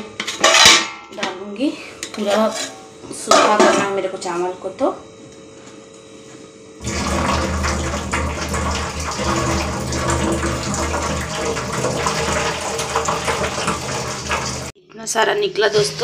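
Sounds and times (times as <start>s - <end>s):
water pouring into steel bowl: 6.8s - 14.8s.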